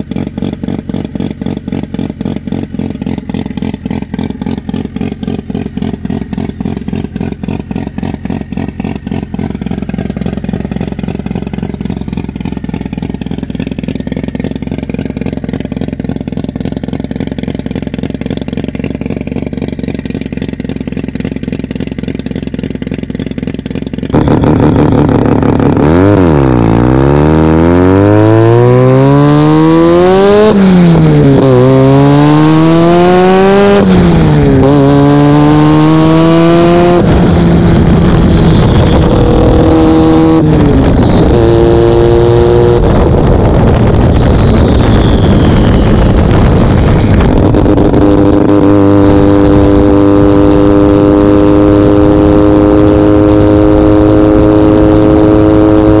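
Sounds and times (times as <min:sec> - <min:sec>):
rotary engine revving: 0:24.1 - 0:56.0
turbo whistle: 0:37.8 - 0:39.8, 0:40.5 - 0:41.9, 0:42.8 - 0:47.1.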